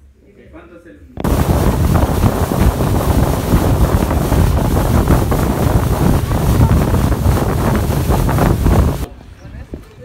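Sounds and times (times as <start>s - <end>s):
water rushing along hull: 1.2s - 9.1s
wind buffeting microphone: 1.2s - 10.0s.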